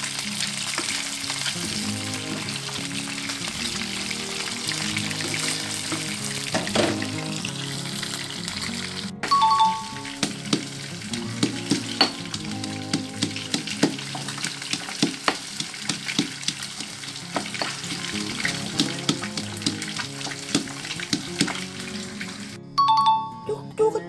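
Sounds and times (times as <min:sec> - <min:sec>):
background music: 0:00.0 - 0:24.0
short chime: 0:09.3 - 0:10.0
pestle pounding in stone mortar: 0:10.2 - 0:12.3, 0:12.9 - 0:17.7, 0:18.8 - 0:21.6.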